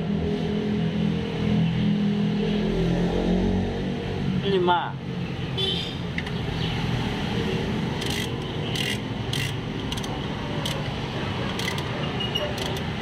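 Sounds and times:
ratchet wrench clicking: 7.9s - 13.0s.

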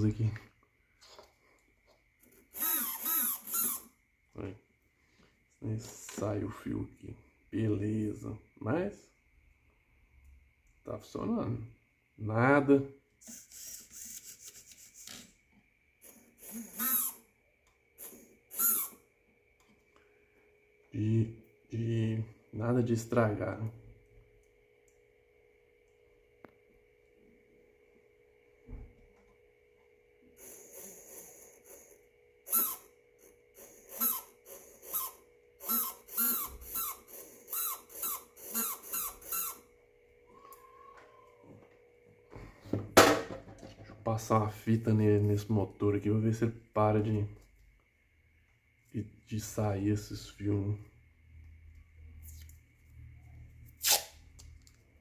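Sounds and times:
electric motor whirring: 2.5s - 3.9s, 13.2s - 15.2s, 16.0s - 17.2s, 30.4s - 39.7s
electric motor whine: 13.2s - 15.1s.

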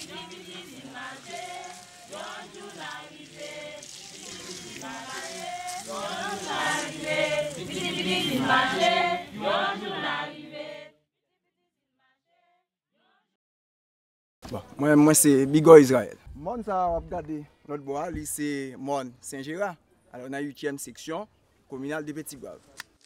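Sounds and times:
choir singing unaccompanied: 0.0s - 11.0s.

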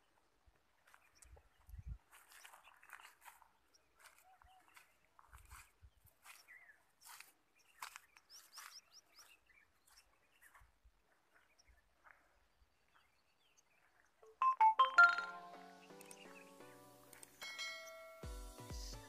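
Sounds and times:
bright chime jingle: 14.3s - 15.7s, 17.4s - 18.4s.

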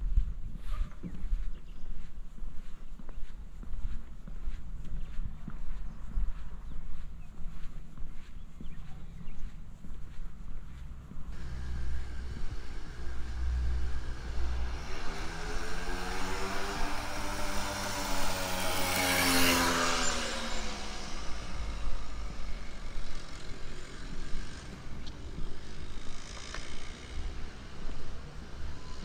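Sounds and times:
vehicle engine passing: 11.3s - 29.0s.

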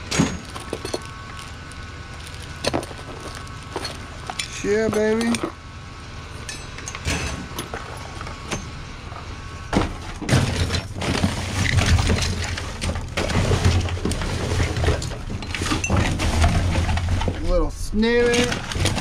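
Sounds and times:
trash rustling and knocking: 0.0s - 5.5s, 6.9s - 17.6s, 18.2s - 19.0s.

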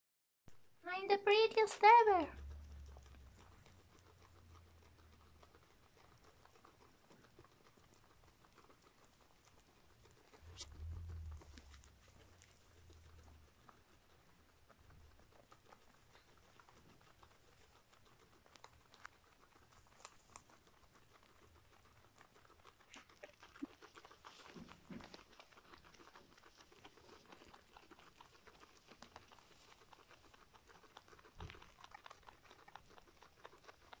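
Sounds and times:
guinea pig chewing hay: 0.6s - 34.0s
low rumble: 10.5s - 12.3s.

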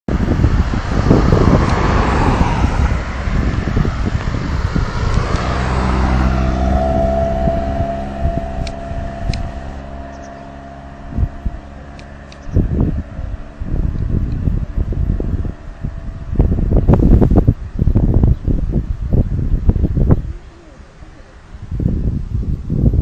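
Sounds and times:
vehicle engine running steadily: 0.0s - 23.0s
wind buffeting microphone: 0.1s - 23.0s
car passing close by: 0.2s - 17.5s.

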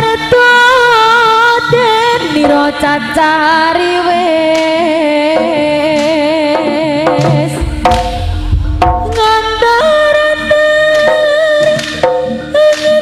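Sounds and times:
deep drum beats: 6.7s - 12.3s.

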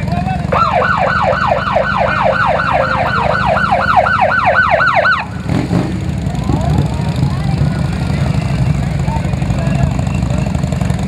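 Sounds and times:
motorcycle engines humming: 0.0s - 11.0s
police siren yelping: 0.5s - 5.6s.

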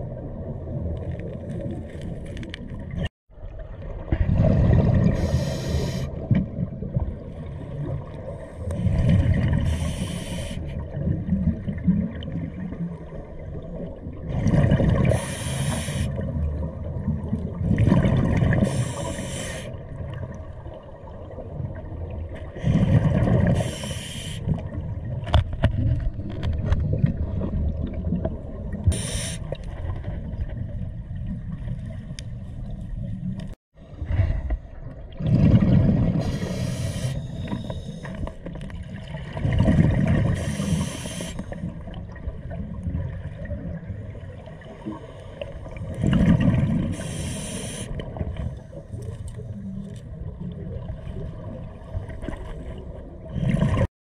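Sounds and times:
exhaled air bubbling: 0.0s - 25.2s, 34.2s - 53.9s
regulator inhalation hiss: 5.2s - 6.1s, 9.7s - 10.7s, 15.2s - 16.1s, 18.7s - 19.7s, 23.6s - 24.5s, 28.9s - 29.5s, 36.3s - 38.1s, 40.4s - 41.5s, 47.0s - 48.0s.

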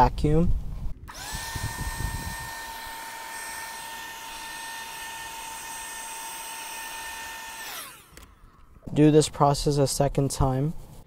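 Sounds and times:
handheld vacuum running: 1.1s - 8.4s.

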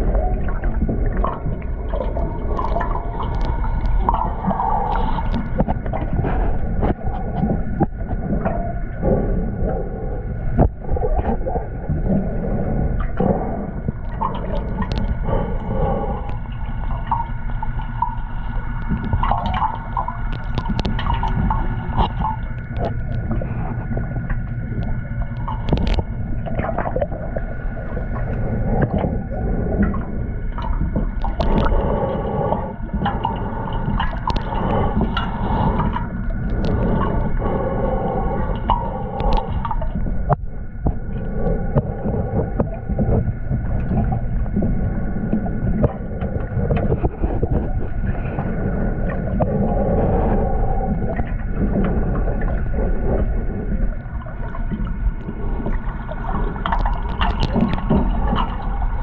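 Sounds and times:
bubbling: 0.0s - 59.0s
muffled underwater rumble: 0.0s - 59.0s
steady multi-tone whine: 0.0s - 59.0s.

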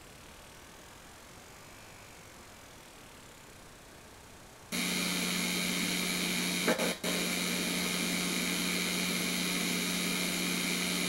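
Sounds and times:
steady hiss with low hum: 0.0s - 11.0s
loud steam burst: 4.8s - 11.0s.

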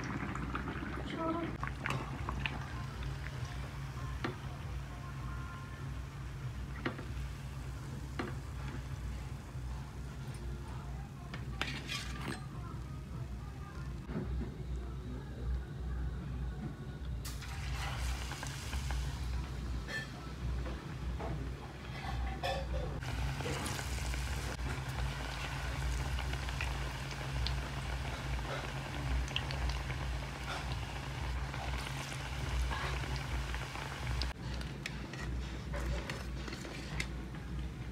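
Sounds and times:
faint sizzling oil: 0.0s - 14.0s, 17.2s - 21.6s, 22.4s - 34.4s.

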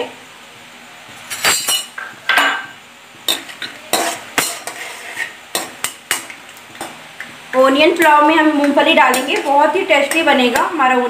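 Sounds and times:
metal spoon scraping iron pan: 3.3s - 6.2s, 9.0s - 10.4s.

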